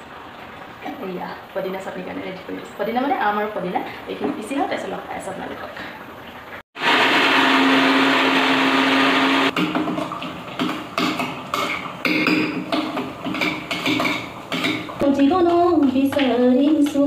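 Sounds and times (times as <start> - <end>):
electric mixer grinder running: 6.8 - 9.6.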